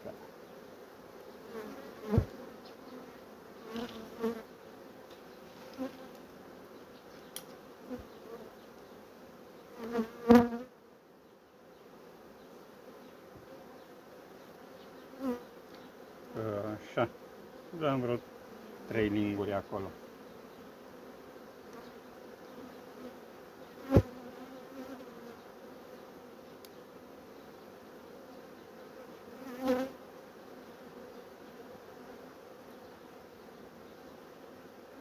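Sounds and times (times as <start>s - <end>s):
honeybees buzzing: 0.0s - 35.0s.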